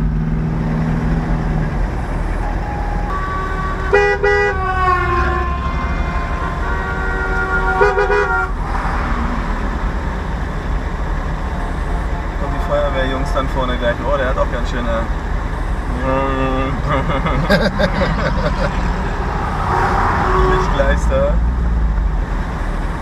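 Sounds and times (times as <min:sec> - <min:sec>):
car driving rumble: 0:00.0 - 0:23.0
held horn tone: 0:01.8 - 0:08.9, 0:11.2 - 0:14.4, 0:19.5 - 0:21.1
car horns honking: 0:01.9 - 0:08.8, 0:11.2 - 0:14.9, 0:19.6 - 0:21.2.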